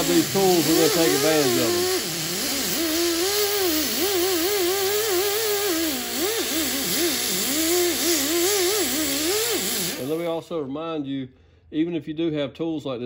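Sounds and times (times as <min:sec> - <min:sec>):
die grinder whine: 0:00.0 - 0:10.3
steady grinding hiss: 0:00.0 - 0:10.4.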